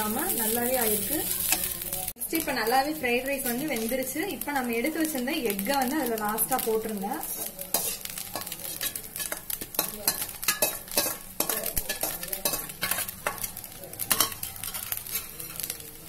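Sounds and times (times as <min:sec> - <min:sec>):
pan sizzling: 0:00.0 - 0:16.0
spatula scraping metal pan: 0:07.2 - 0:15.7.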